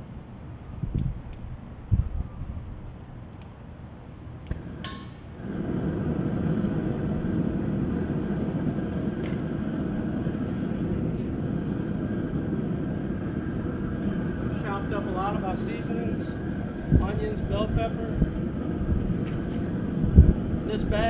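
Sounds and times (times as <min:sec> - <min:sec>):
gas burner flame rushing: 0:04.5 - 0:21.0.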